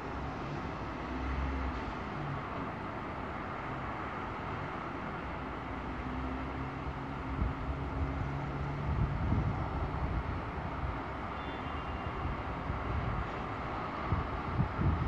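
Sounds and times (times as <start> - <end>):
vehicle engine: 0.0 - 11.6
distant traffic hum: 0.0 - 15.0
wind buffeting microphone: 7.3 - 11.0, 14.0 - 15.0.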